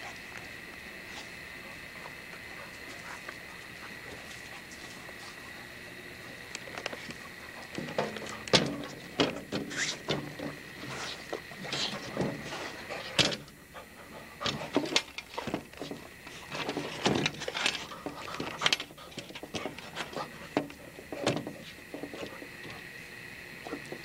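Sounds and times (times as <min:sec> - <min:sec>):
dog panting: 0:01.0 - 0:08.5, 0:10.8 - 0:14.8, 0:17.7 - 0:22.6.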